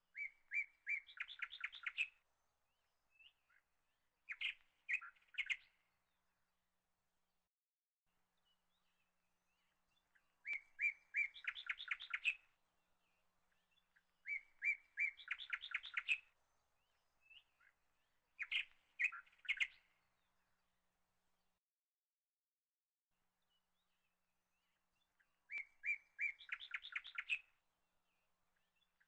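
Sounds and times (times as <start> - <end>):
songbird chirping and trilling: 0.1 - 6.5, 8.4 - 20.8, 23.4 - 29.0.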